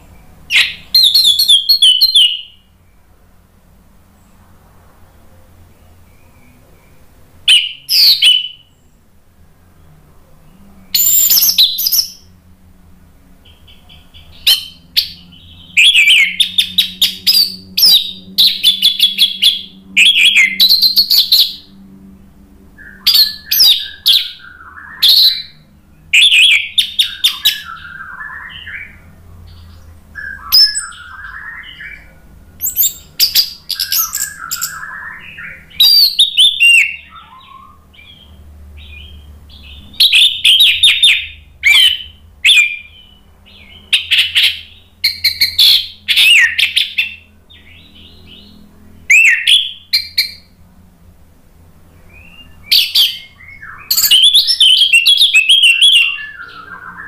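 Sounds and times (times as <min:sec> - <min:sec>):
thrush singing whistled phrases: 0:00.5 - 0:02.7, 0:07.5 - 0:08.8, 0:11.0 - 0:12.3, 0:13.5 - 0:21.7, 0:22.8 - 0:29.1, 0:30.2 - 0:38.3, 0:39.0 - 0:43.2, 0:43.8 - 0:48.4, 0:49.1 - 0:50.5, 0:52.1 - 0:57.0.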